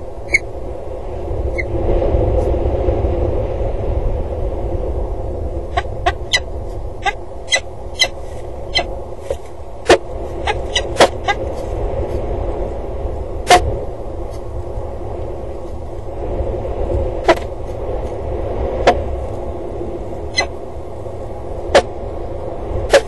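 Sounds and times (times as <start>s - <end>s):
steady low rumble: 0.0s - 23.0s
falcons calling: 5.7s - 8.9s, 9.9s - 11.5s, 20.3s - 20.6s.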